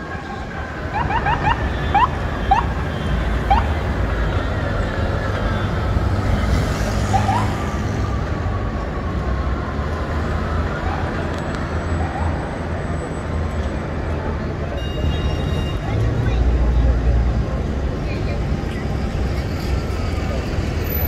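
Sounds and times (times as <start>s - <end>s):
emergency siren: 0.0s - 6.0s, 7.0s - 12.9s
city traffic rumbling: 0.0s - 21.0s.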